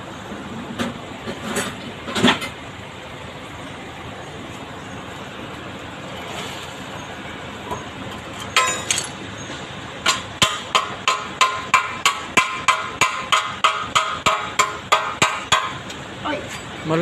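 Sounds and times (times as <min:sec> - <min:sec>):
hammer striking sheet-metal gutter: 0:10.0 - 0:15.8.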